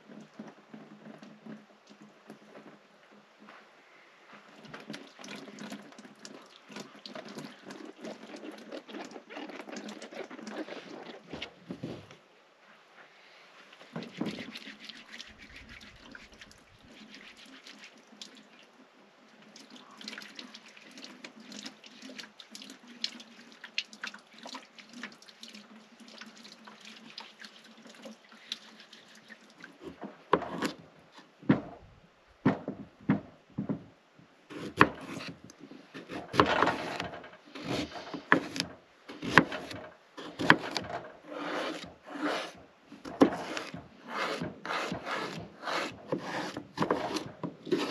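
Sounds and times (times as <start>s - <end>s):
rubbing vegetables under water: 4.5s - 12.1s, 13.6s - 18.4s, 34.5s - 47.9s
water running from spigot: 19.4s - 29.8s
knife cutting on wooden board: 30.4s - 30.8s, 34.5s - 47.9s.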